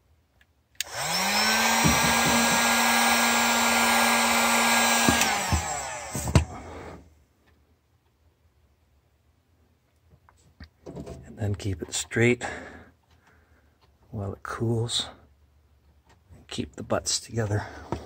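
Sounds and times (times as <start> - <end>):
heat gun fan hum: 0.8 - 7.0.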